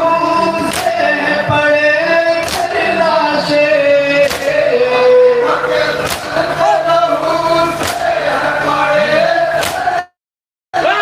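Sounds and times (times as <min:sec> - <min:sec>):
men chanting into a microphone: 0:00.0 - 0:10.2, 0:10.8 - 0:11.0
unison chest-beating slaps: 0:00.7 - 0:01.0, 0:02.4 - 0:02.7, 0:04.2 - 0:04.6, 0:06.0 - 0:06.3, 0:07.8 - 0:08.1, 0:09.6 - 0:09.9.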